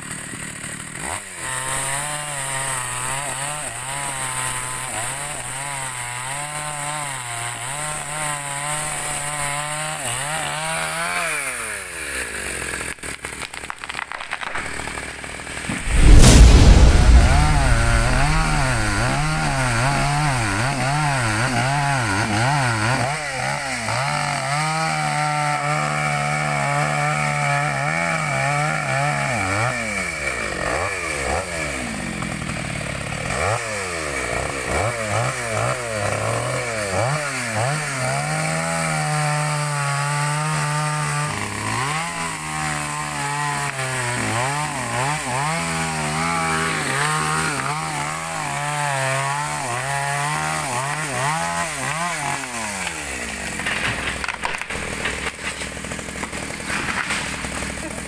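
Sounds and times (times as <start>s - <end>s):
chainsaw cutting wood: 0.0s - 16.6s, 17.2s - 58.0s.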